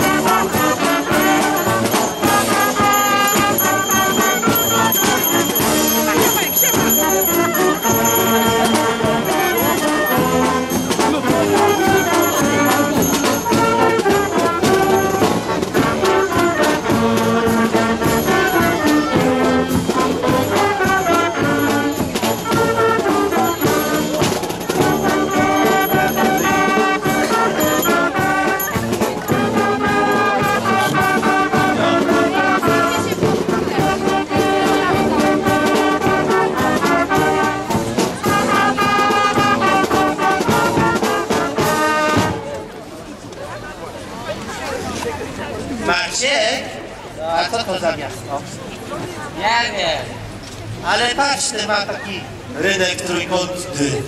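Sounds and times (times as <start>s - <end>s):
brass music with held notes: 0.0s - 42.9s.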